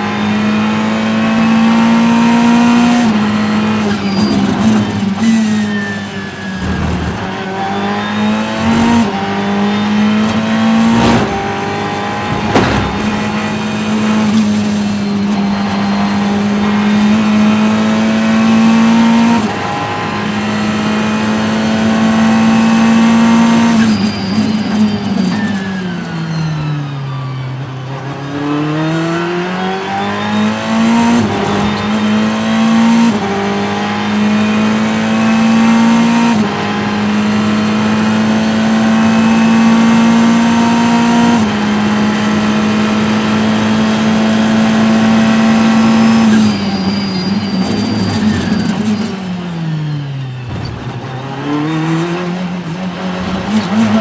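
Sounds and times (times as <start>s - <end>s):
race car engine revving: 6.6s - 24.0s, 28.2s - 47.0s, 50.8s - 54.0s.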